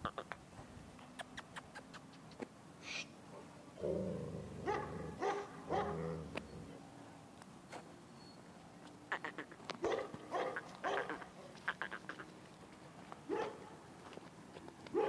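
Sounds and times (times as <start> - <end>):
dog whining: 3.8 - 6.8.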